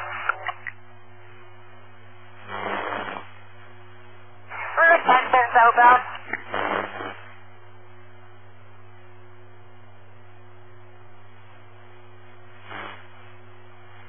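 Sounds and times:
burst of radio noise: 0.0 - 0.7, 4.5 - 7.4
radio static hiss: 0.0 - 8.0, 11.2 - 14.0
low electrical hum: 0.0 - 14.0.

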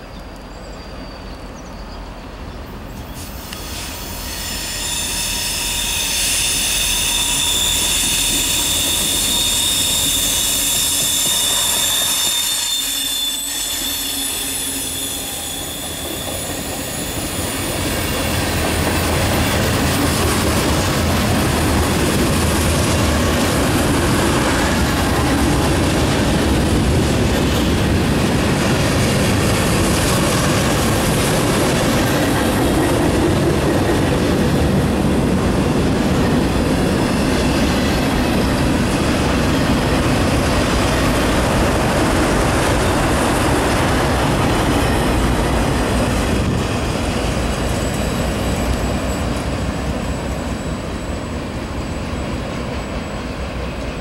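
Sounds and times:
train wheels squealing: 0.0 - 25.8, 36.2 - 40.4, 42.4 - 54.0.

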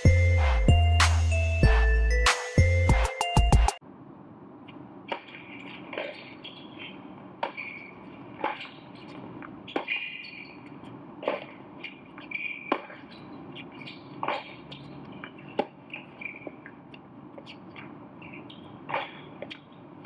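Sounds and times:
shoe squeaks on hard court: 5.1 - 16.8, 17.4 - 19.8
racket hitting tennis ball: 7.4 - 10.5, 11.2 - 16.4.

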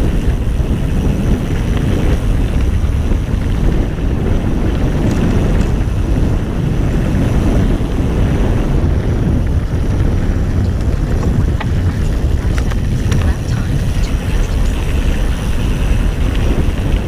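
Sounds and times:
bike tyres rumbling over dirt: 0.0 - 17.0
wind buffeting microphone: 0.0 - 17.0
faint bike clicks: 1.0 - 6.3, 9.5 - 17.0.

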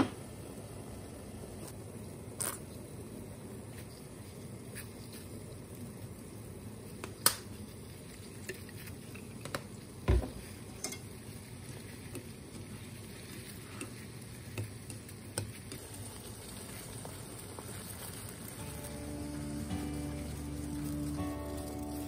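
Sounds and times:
water boiling in a pot: 0.0 - 22.0
chopsticks mixing food: 6.9 - 22.0.

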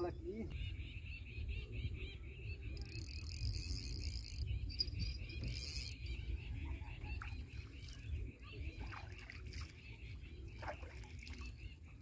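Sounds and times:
wind rumble on microphone: 0.0 - 12.0
insects chirping: 2.8 - 6.0.

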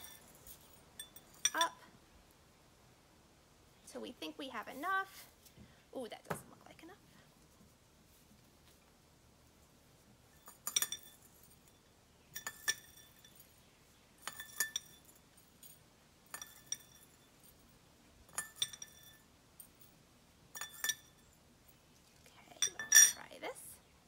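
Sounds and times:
metal spoon clinking on glass bowl: 1.0 - 1.8, 10.4 - 13.5, 14.2 - 15.2, 16.3 - 17.3, 18.3 - 19.3, 20.5 - 21.4, 22.6 - 23.3.

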